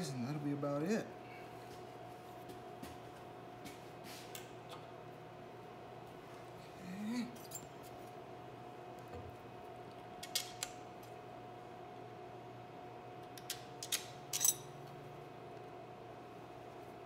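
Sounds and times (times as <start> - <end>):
steady background hum: 0.0 - 17.0.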